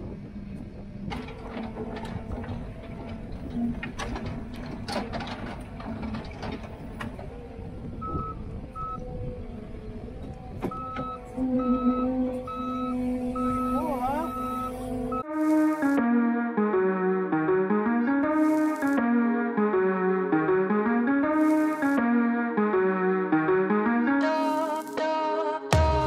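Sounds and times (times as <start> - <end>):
diesel engine running: 0.0 - 15.2
machine clanks and knocks: 1.1 - 7.4
reversing alarm beeps: 7.8 - 9.1, 10.6 - 15.3.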